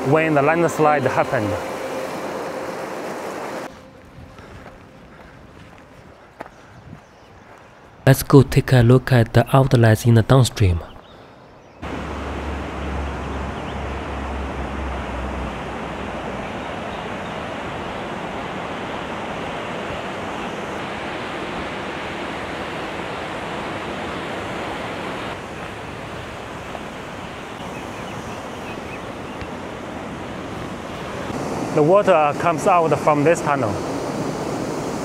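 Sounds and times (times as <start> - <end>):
whitewater rushing: 0.0 - 3.7, 11.8 - 35.0.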